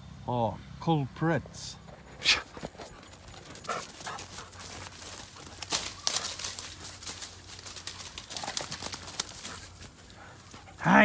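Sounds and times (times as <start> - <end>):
dog rustling through dry leaves: 3.2 - 10.5.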